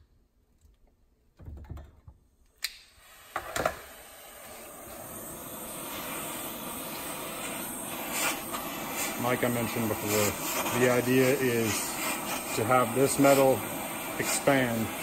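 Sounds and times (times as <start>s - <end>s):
gas torch igniter click: 2.6s - 4.7s
torch flame hissing: 2.7s - 15.0s.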